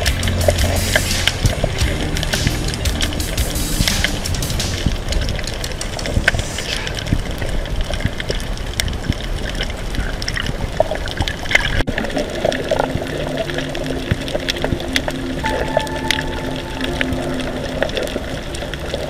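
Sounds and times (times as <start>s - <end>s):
low steady tones: 0.0s - 7.8s, 11.8s - 19.0s
underwater water rushing: 0.0s - 19.0s.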